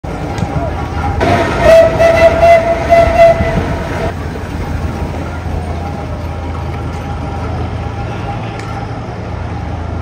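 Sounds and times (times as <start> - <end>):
low rumble of passing vehicles: 0.0 - 10.0
steam engine whistle: 1.2 - 3.9.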